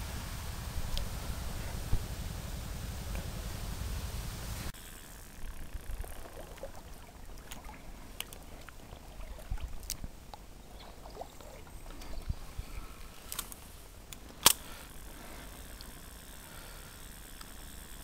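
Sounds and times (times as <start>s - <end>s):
faint river water: 0.0s - 18.0s.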